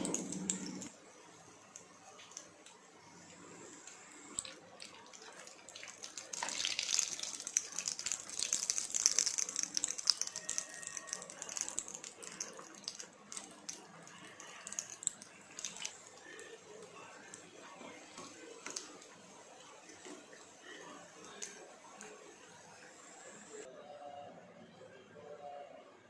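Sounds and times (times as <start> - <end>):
deep-frying crackling sizzle: 0.0 - 23.7.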